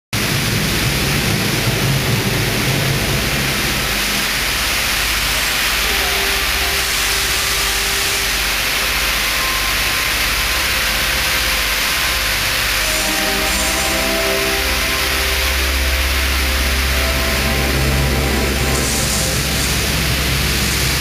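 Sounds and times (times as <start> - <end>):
smoke jets hissing: 3.9 - 21.0
low rumble: 11.2 - 21.0.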